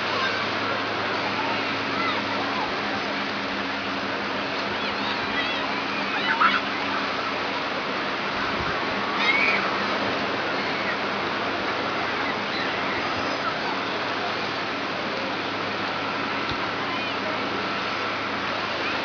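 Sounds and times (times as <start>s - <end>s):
surf breaking on shore: 0.0s - 19.0s.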